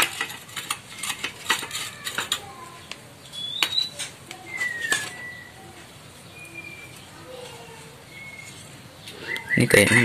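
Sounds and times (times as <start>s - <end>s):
metal burner parts clinking: 0.0s - 2.5s
faint whistled bird calls: 3.3s - 5.7s, 6.3s - 7.0s, 8.1s - 9.9s.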